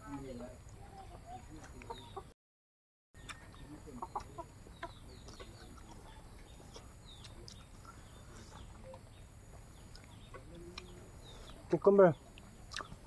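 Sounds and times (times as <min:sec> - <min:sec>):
birds chirping: 0:00.0 - 0:02.3, 0:03.2 - 0:13.0
chickens clucking: 0:00.1 - 0:02.4, 0:03.2 - 0:13.0
people chewing food: 0:03.2 - 0:13.0.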